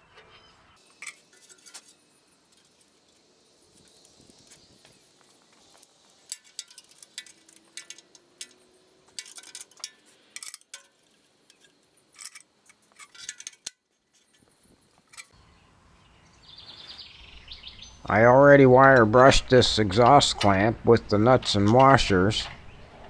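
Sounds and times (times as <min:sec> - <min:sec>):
metal hand tools clicking: 0:05.7 - 0:14.4
faint bird chirps: 0:15.3 - 0:18.1.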